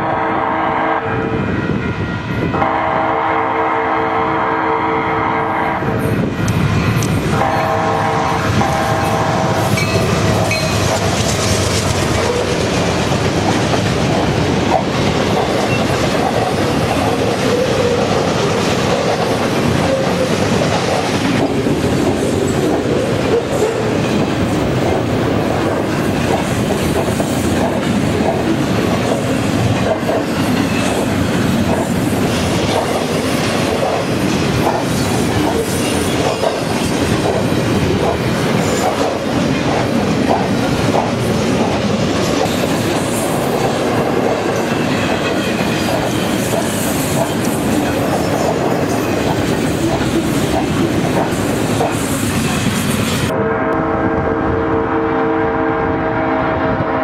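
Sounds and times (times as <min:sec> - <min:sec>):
locomotive horn chord: 0:00.0 - 0:06.0, 0:07.4 - 0:11.0, 0:53.3 - 0:57.0
train wheels clattering on rails: 0:06.2 - 0:53.3.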